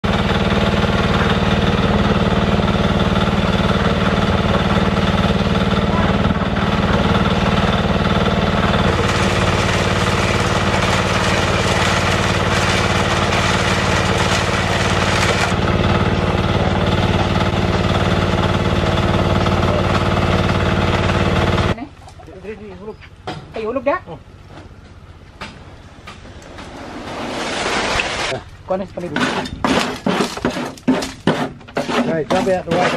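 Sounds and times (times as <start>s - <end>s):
stationary engine running: 0.0s - 21.8s.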